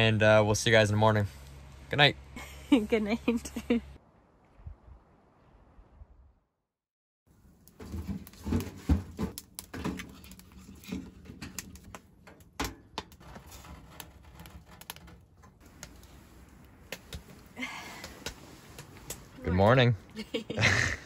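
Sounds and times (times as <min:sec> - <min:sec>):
firewood knocking in firebox: 0:07.7 - 0:16.0.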